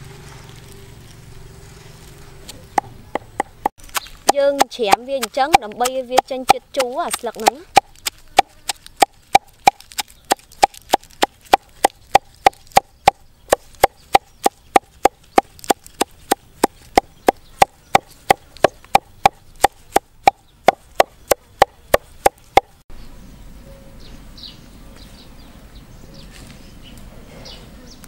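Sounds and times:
cleaver chopping on wooden block: 0:02.8 - 0:22.7.

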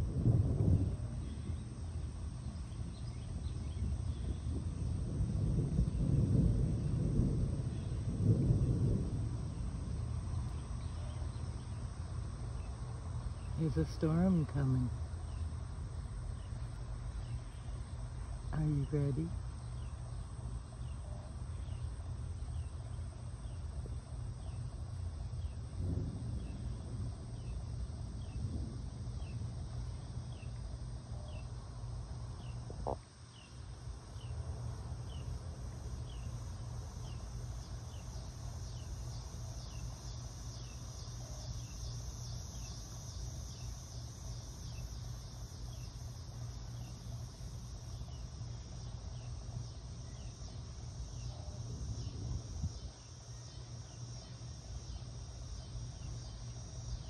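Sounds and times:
low rumble: 0:00.0 - 0:20.9, 0:21.6 - 0:33.0
insects trilling: 0:00.0 - 0:57.0.

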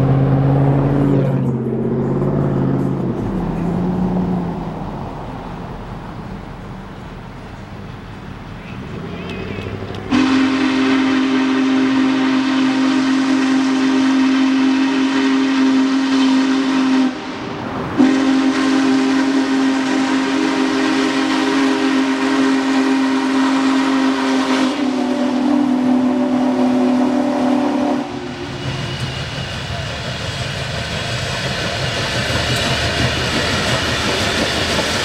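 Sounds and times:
steam locomotive whistle blasts: 0:10.1 - 0:29.9.

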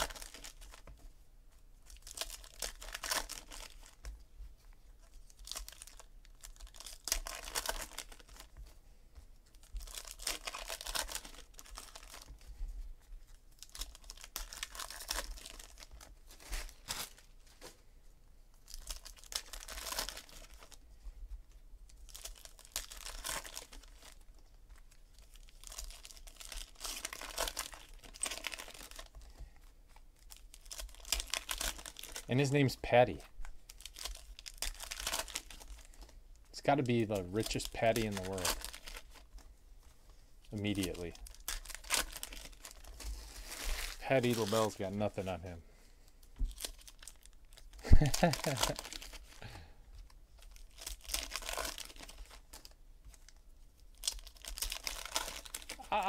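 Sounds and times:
foil wrappers crinkling and tearing: 0:00.0 - 0:01.1, 0:01.8 - 0:04.2, 0:04.9 - 0:08.8, 0:09.4 - 0:17.8, 0:18.5 - 0:45.5, 0:46.2 - 0:56.0.

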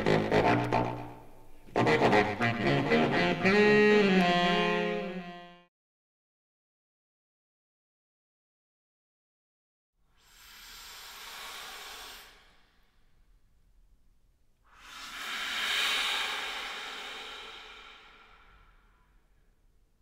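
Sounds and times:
breathy air noise: 0:10.1 - 0:13.8, 0:14.6 - 0:20.0.

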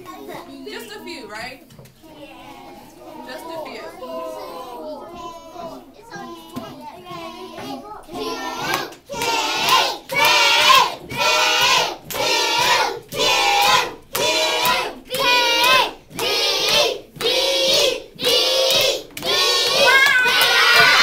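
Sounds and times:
children chanting together: 0:02.0 - 0:21.0
hands clapping: 0:08.6 - 0:21.0.

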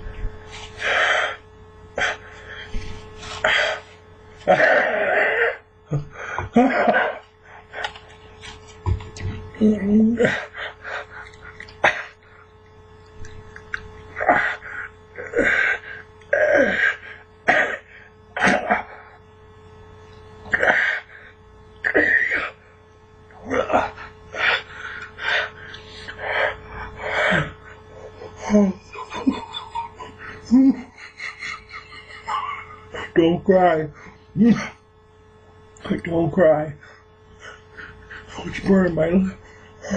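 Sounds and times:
man coughing and gasping: 0:17.4 - 0:19.0.

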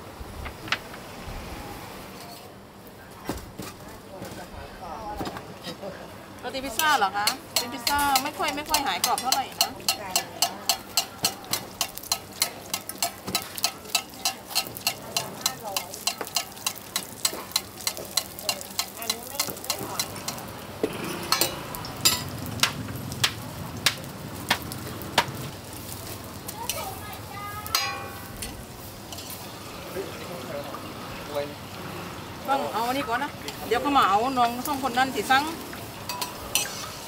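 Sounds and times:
dough frying in oil: 0:06.4 - 0:37.0
metal spatula tapping pan: 0:06.7 - 0:20.5, 0:27.7 - 0:29.3, 0:36.1 - 0:36.8.

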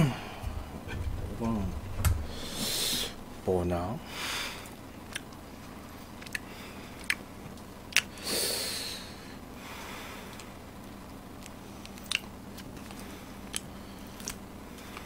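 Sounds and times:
breath: 0:08.1 - 0:10.4.

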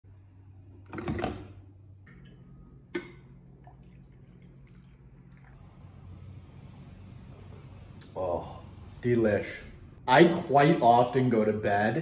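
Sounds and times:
coffee maker gurgling: 0:03.0 - 0:05.6
coffee pouring into a mug: 0:03.2 - 0:05.6.

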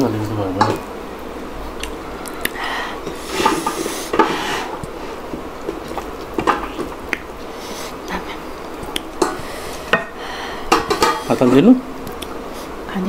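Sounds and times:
chewing and wet mouth sounds: 0:05.6 - 0:07.3, 0:08.0 - 0:09.2, 0:12.0 - 0:12.4.

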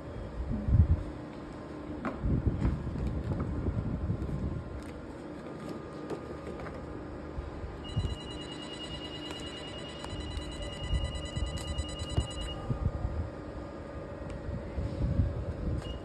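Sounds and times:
high electronic beep: 0:07.9 - 0:12.6.

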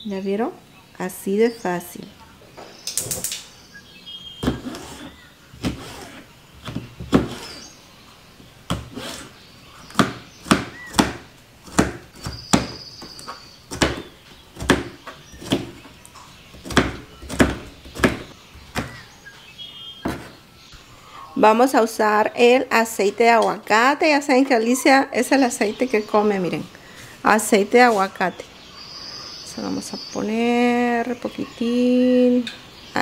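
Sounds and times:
knife chopping on cutting board: 0:09.9 - 0:15.8, 0:16.6 - 0:19.0, 0:20.0 - 0:20.4.

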